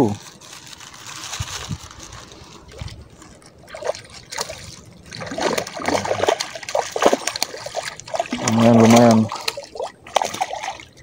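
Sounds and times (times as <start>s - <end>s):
fish splashing at surface: 2.2s - 11.0s.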